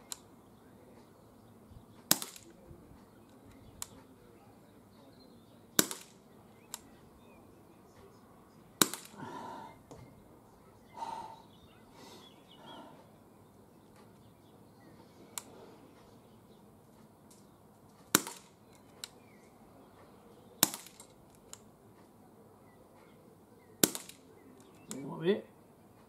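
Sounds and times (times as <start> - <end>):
air revolver shots: 2.1 - 2.6, 5.8 - 6.9, 8.8 - 9.2, 18.1 - 18.6, 20.6 - 21.1, 23.8 - 24.3.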